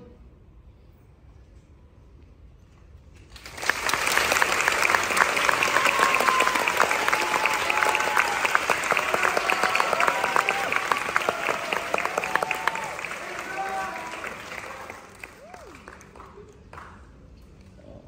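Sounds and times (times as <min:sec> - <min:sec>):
audience applause: 0:03.3 - 0:17.2.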